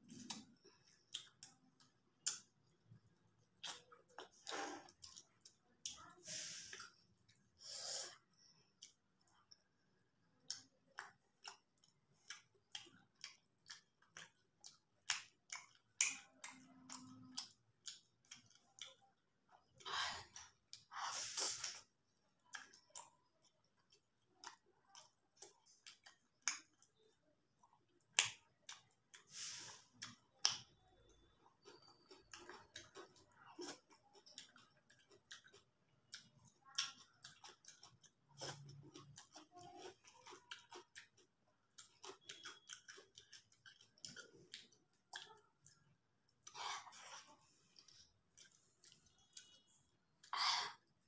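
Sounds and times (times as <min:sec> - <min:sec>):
chewing with wet mouth clicks: 0:00.0 - 0:06.1, 0:06.7 - 0:51.0.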